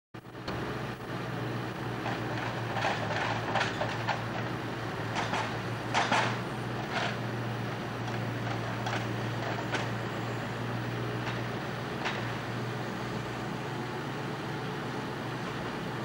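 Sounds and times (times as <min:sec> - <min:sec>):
diesel truck engine running: 0:00.2 - 0:16.0
loader crane working: 0:00.2 - 0:16.0
metallic knocks from crane: 0:05.1 - 0:07.2.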